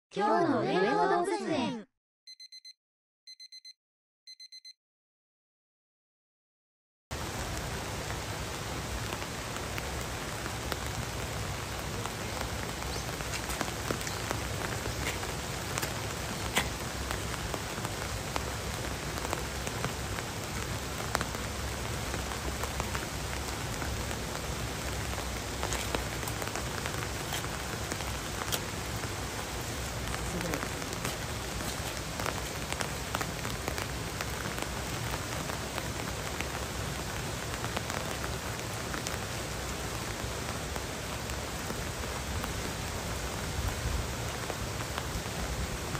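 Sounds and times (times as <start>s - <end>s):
short electronic beeps: 2.3s - 4.8s
sharp raindrop hits: 7.1s - 39.2s
steady rain falling: 7.1s - 45.9s.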